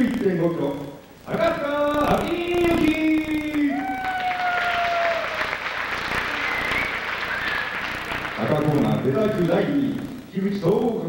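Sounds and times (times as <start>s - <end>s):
crowd applause: 3.4s - 9.1s.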